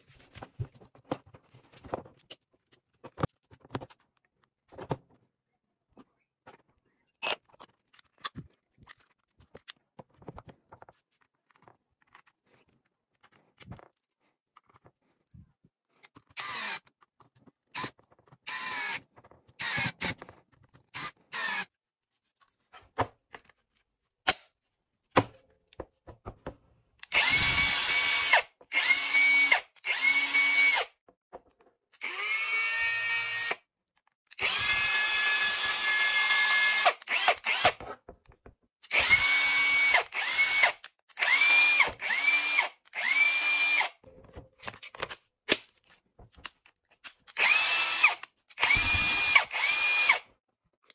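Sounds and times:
impact wrench motor whine: 0:47.4 - 0:50.2.

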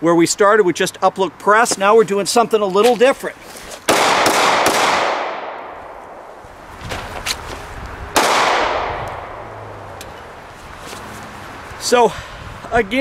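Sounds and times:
pistol shot with echo: 0:03.9 - 0:06.3, 0:08.2 - 0:09.5.

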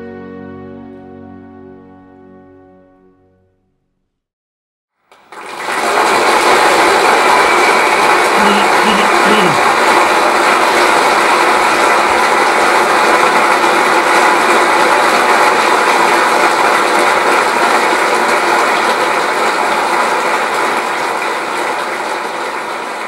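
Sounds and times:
audience applauding: 0:05.1 - 0:23.0.

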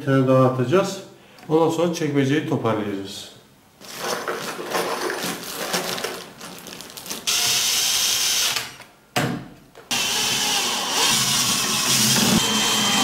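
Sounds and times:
cordless drill driving screws: 0:07.2 - 0:08.8, 0:09.9 - 0:13.0.

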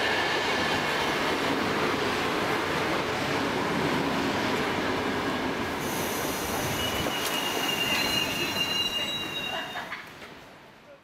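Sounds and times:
electric train rumbling: 0:00.0 - 0:10.8
train brakes squealing: 0:05.8 - 0:10.0.

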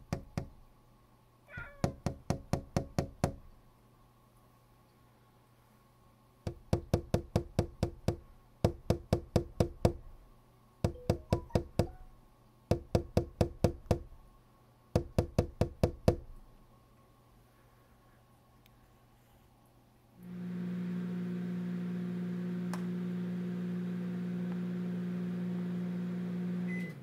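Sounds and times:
finger knocking on window pane: 0:01.8 - 0:03.4, 0:06.5 - 0:10.0, 0:10.8 - 0:12.0, 0:12.7 - 0:14.1, 0:15.0 - 0:16.3.

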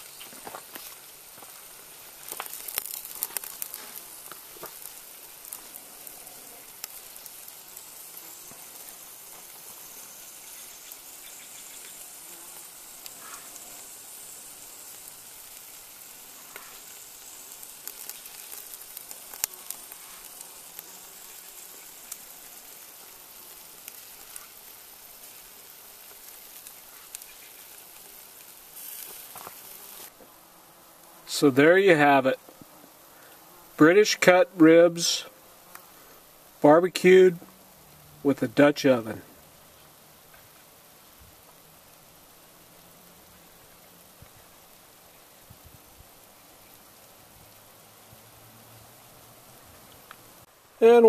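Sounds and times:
crackles and pops: 0:00.0 - 0:30.3, 0:35.6 - 0:48.3, 0:49.6 - 0:51.0
meat sizzling on a grill: 0:00.0 - 0:51.0.

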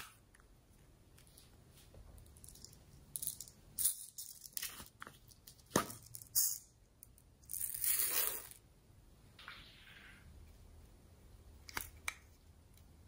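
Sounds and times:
plastic beads rattling: 0:02.2 - 0:08.6.

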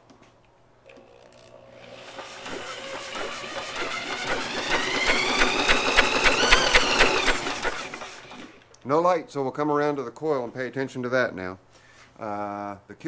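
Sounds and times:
small engine cranking with starter: 0:01.0 - 0:08.7.

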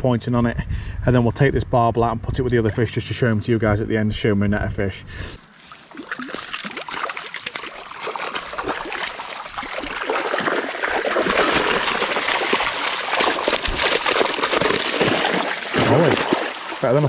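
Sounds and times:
water trickling and splashing: 0:05.4 - 0:17.0.

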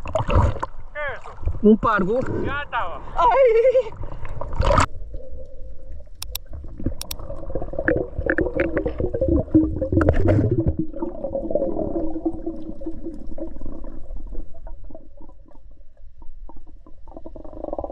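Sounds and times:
underwater wavering hum: 0:03.9 - 0:17.9
underwater rumbling: 0:04.0 - 0:17.9
sharp clicks and knocks: 0:06.2 - 0:06.4, 0:07.0 - 0:07.2.

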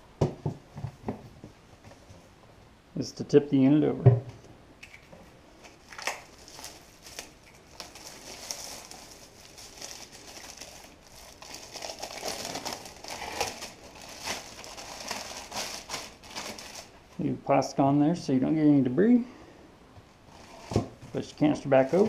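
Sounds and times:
cellophane crinkling: 0:05.6 - 0:17.2, 0:20.3 - 0:22.0.

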